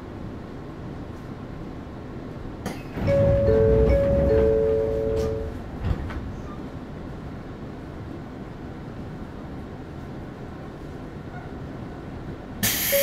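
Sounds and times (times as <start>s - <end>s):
train rumbling on rails: 0.0s - 13.0s
train two-note horn: 3.1s - 5.6s.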